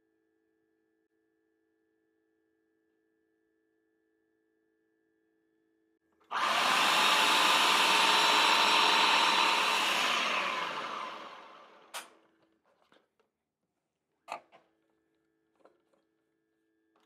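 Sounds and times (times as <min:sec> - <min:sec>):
food processor running: 0:06.3 - 0:12.0.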